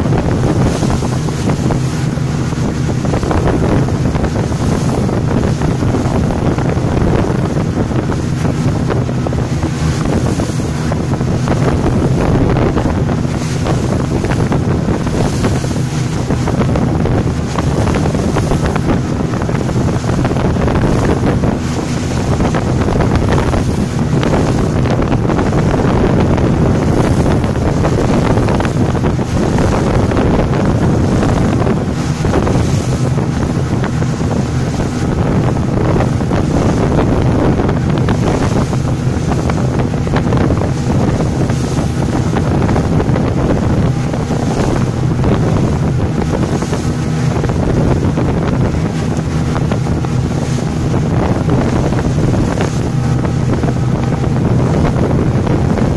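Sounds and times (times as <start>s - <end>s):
motorboat engine hum: 0.0s - 55.9s
water rushing along hull: 0.0s - 55.9s
wind buffeting microphone: 0.0s - 55.9s.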